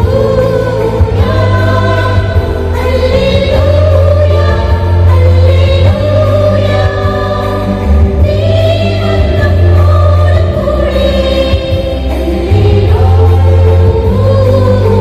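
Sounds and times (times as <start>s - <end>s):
church choir singing a carol: 0.0s - 15.0s.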